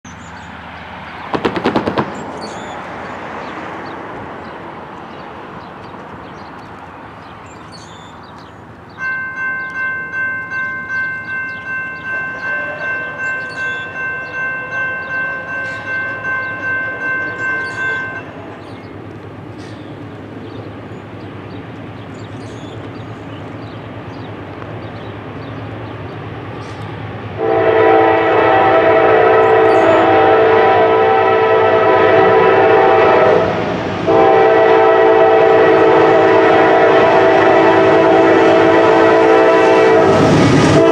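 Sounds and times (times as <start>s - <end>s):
bell ringing rapidly: 9.0s - 18.3s
locomotive air horn blasts: 12.0s - 18.5s, 27.4s - 40.9s.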